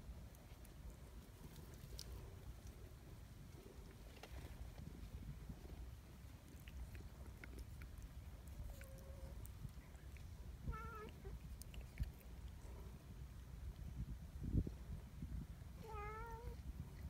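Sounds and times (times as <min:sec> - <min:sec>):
cat meowing softly: 0:10.6 - 0:11.4, 0:15.8 - 0:16.6.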